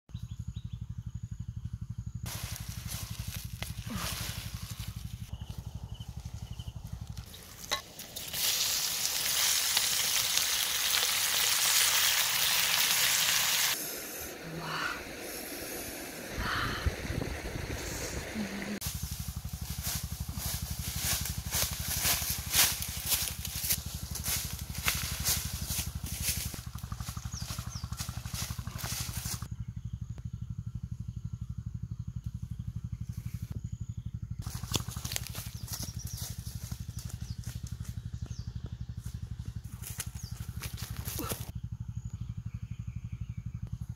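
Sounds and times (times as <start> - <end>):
small engine running: 0.1 - 43.9
footsteps in dry leaves: 2.3 - 13.8, 18.8 - 29.5, 34.4 - 38.0
food sizzling in a wok: 8.2 - 13.8.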